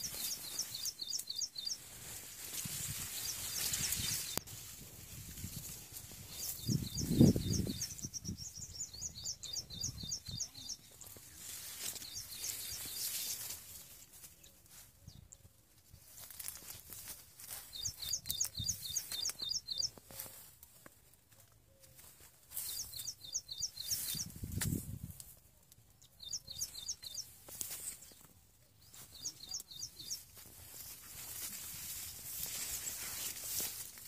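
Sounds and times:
songbird singing: 0.0s - 4.5s, 6.1s - 13.6s, 17.4s - 20.4s, 21.5s - 24.5s, 25.8s - 31.4s
plants rustling: 0.0s - 8.2s, 10.8s - 14.9s, 15.9s - 23.2s, 26.7s - 34.0s.

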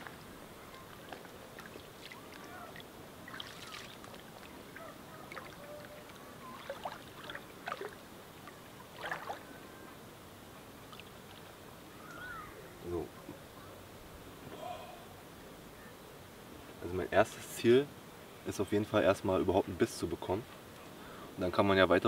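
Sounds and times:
wading through shallow water: 0.0s - 9.9s.

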